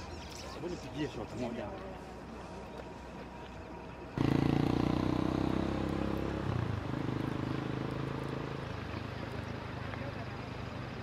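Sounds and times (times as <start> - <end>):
vehicle engine running: 3.9 - 11.0.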